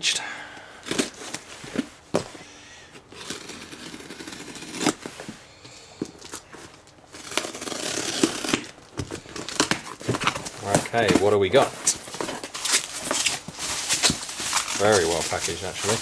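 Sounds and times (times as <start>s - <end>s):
tape and plastic rustling and tearing: 0.8s - 2.4s, 3.0s - 16.0s
knife slicing packing tape: 3.1s - 5.1s, 7.2s - 10.5s.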